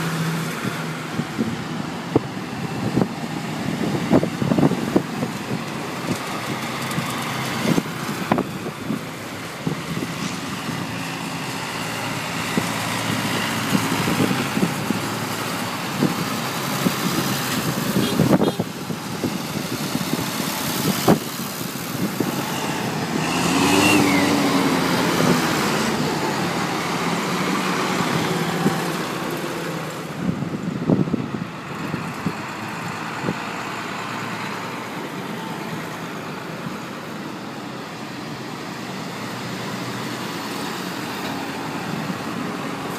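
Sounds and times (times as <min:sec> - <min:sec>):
tractor diesel engines passing: 0:00.0 - 0:42.9
engine revving: 0:02.8 - 0:30.2.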